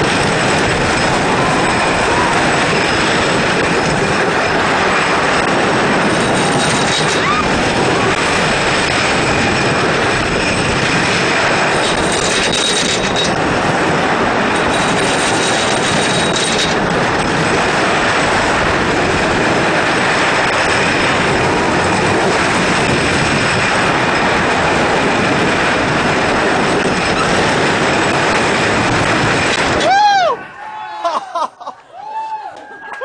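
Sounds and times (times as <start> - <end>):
roller coaster rushing on track: 0.0 - 33.0
high wheel squeal: 0.4 - 5.4, 6.0 - 9.8.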